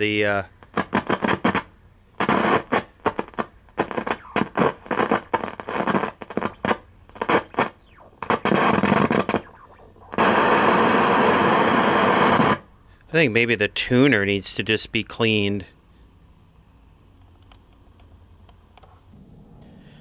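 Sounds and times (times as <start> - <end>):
television static: 0.0 - 12.7.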